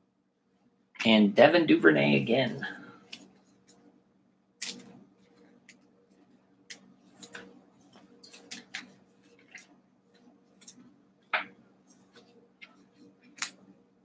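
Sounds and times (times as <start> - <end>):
low steady hum: 0.0 - 14.0
plastic sleeve rustling: 7.0 - 10.9.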